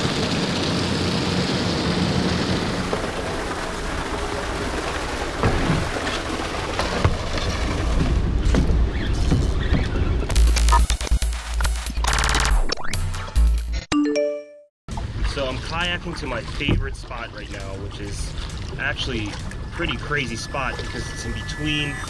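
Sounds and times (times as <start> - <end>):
paddle strokes splashing water: 0.2 - 9.9, 14.9 - 22.0
deep rumble: 14.9 - 22.0.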